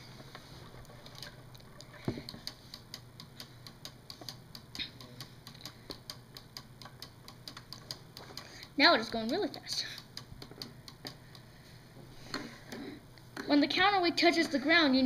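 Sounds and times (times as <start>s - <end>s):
clock ticking fast: 2.3s - 11.5s.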